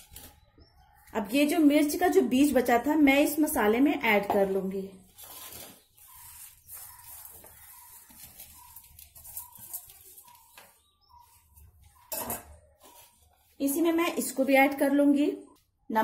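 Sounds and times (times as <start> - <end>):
faint chirping: 5.3 - 13.6.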